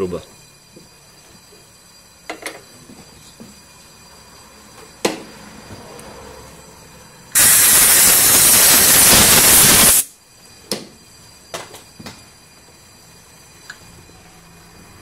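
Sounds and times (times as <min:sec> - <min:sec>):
pressurised gas jet hissing: 0:07.3 - 0:10.1.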